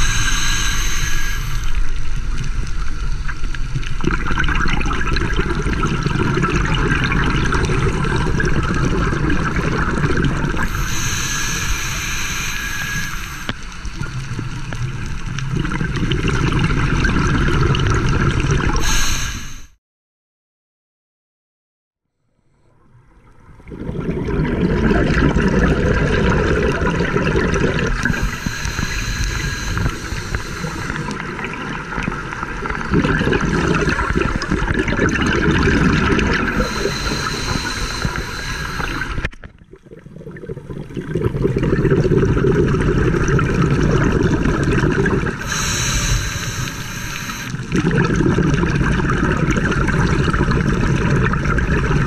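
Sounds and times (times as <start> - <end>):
hissing regulator inhales: 0.0 - 2.0, 10.6 - 13.6, 18.8 - 19.8, 28.0 - 31.2, 36.4 - 39.3, 45.4 - 47.7
exhaled bubbles rumbling underwater: 0.0 - 19.2, 22.8 - 52.0.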